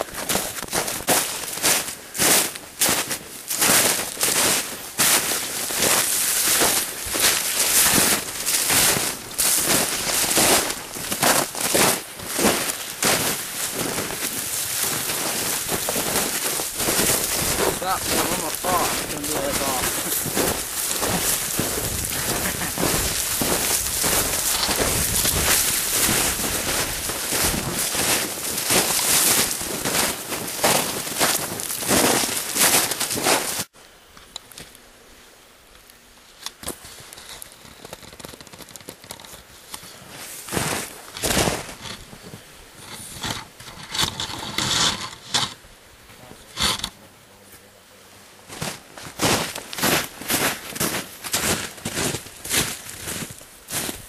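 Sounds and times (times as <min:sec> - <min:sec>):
clothing and pack rustling: 0:00.0 - 0:33.7
footsteps crunching through snow: 0:00.0 - 0:33.7, 0:39.4 - 0:44.8, 0:48.4 - 0:54.0.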